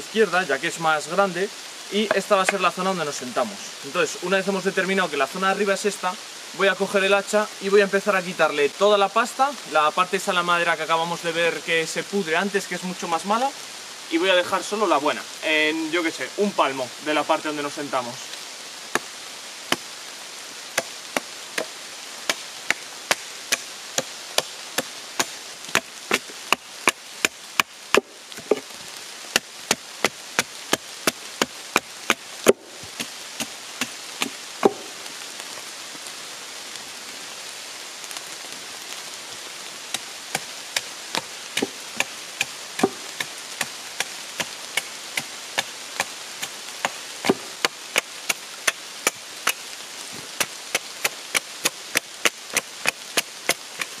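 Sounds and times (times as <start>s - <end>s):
steady rain hiss: 0.0s - 54.0s
hatchet chopping wood: 20.8s - 35.0s, 39.9s - 49.6s, 50.4s - 54.0s.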